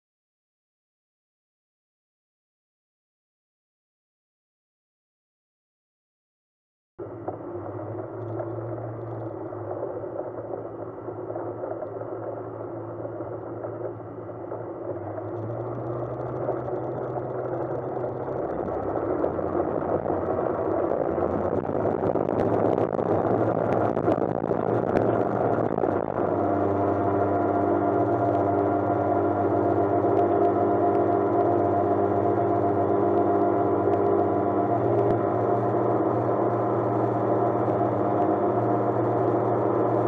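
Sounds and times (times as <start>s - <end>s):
light aircraft engine and propeller: 7.0s - 40.0s.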